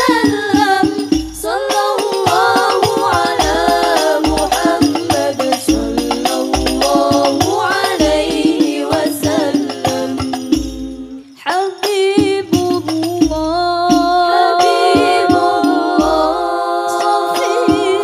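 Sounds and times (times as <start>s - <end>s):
frame drums playing quick strokes: 0.0s - 11.2s
woman singing: 0.0s - 18.0s.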